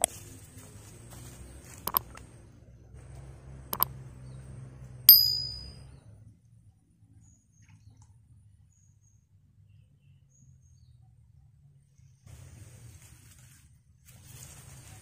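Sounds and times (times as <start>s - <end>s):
bright bell ding: 5.1s - 5.8s.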